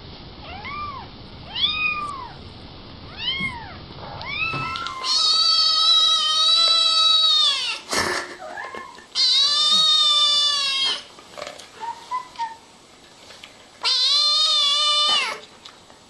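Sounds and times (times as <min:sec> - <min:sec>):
kitten meowing: 0:03.1 - 0:07.8, 0:08.5 - 0:11.0, 0:13.8 - 0:15.4.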